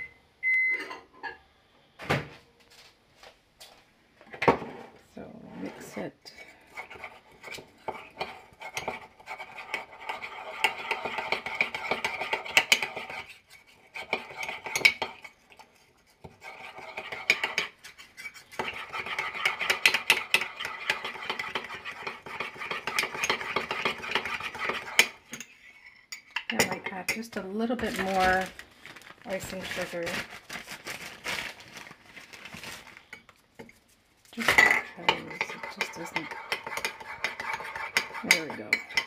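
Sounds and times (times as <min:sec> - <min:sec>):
spoon stirring in a mug: 0:05.6 - 0:28.5, 0:33.0 - 0:39.0.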